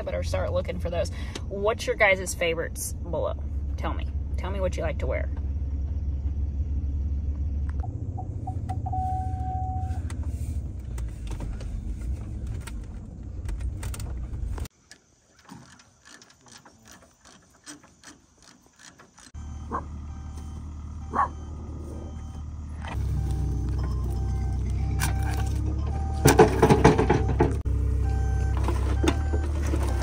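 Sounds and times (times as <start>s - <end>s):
engine rumble inside vehicle cab: 0.0s - 14.7s, 18.0s - 30.0s
held chime tone: 8.2s - 10.0s
short chime beeps: 8.2s - 10.0s.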